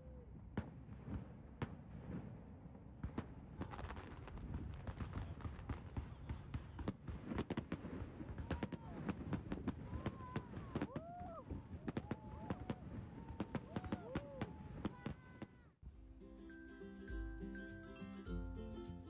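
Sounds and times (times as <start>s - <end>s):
fireworks bangs and cracks: 0.5s - 15.6s.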